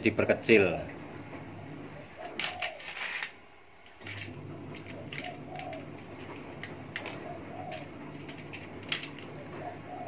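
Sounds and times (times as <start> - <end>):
low steady hum: 0.0 - 10.0
dove cooing: 1.8 - 3.2, 4.8 - 10.0.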